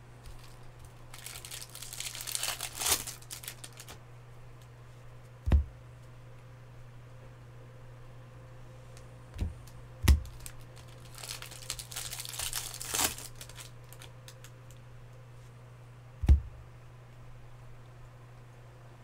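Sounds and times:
foil pack crinkling: 0:00.2 - 0:04.0, 0:10.1 - 0:14.8
dull thumps: 0:05.4 - 0:05.8, 0:09.3 - 0:10.5, 0:16.2 - 0:16.7.

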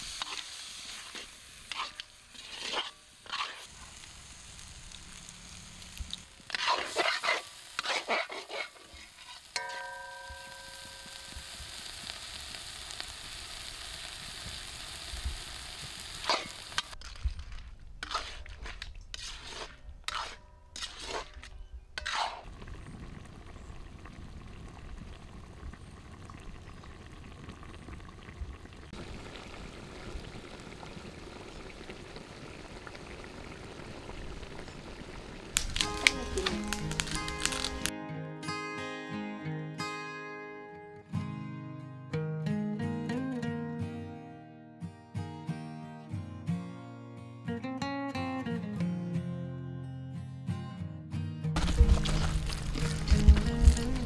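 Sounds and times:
crab sizzling in oil: 0:00.0 - 0:17.0, 0:22.0 - 0:37.9, 0:51.6 - 0:54.0.

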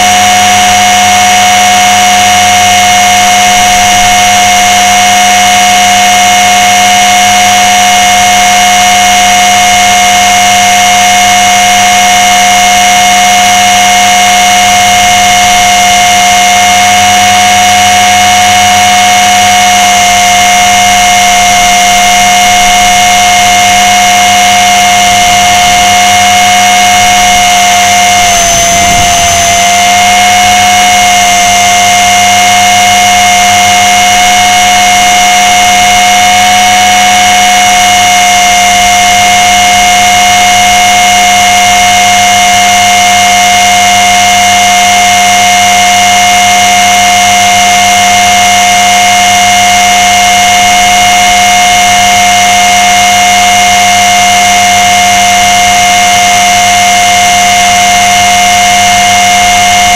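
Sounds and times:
rc helicopter motor whining: 0:00.0 - 0:59.9.

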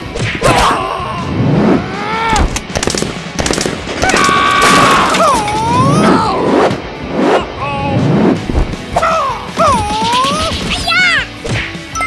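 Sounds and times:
cartoon background music: 0:07.3 - 0:12.0.

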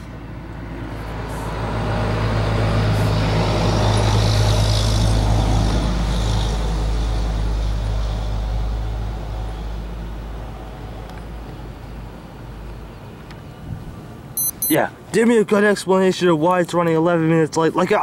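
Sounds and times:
large vehicle engine droning: 0:00.0 - 0:14.3.

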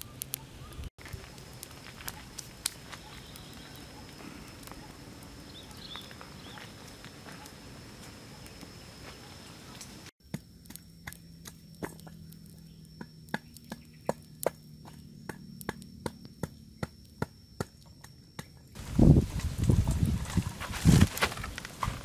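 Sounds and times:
campfire crackling and popping: 0:00.0 - 0:22.0.

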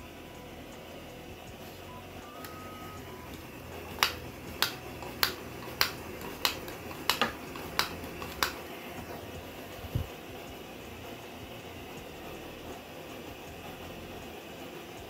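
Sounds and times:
stove burner hissing: 0:00.0 - 0:15.0
stove fuel pump clicking: 0:03.9 - 0:08.6.

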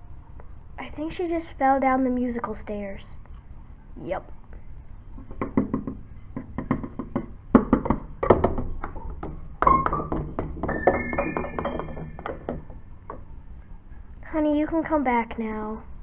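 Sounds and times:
keyboard notes tumbling run: 0:05.2 - 0:14.0.

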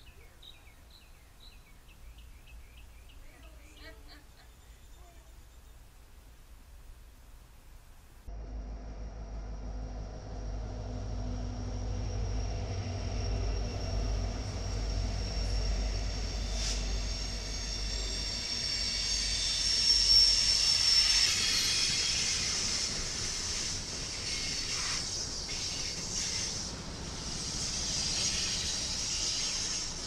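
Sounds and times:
diesel locomotive rumble: 0:08.3 - 0:30.0
train wheels hissing on rails: 0:11.7 - 0:30.0.

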